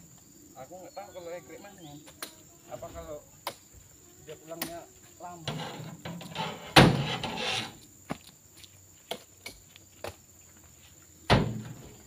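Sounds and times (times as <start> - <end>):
scraping rustling noise: 5.4 - 7.8.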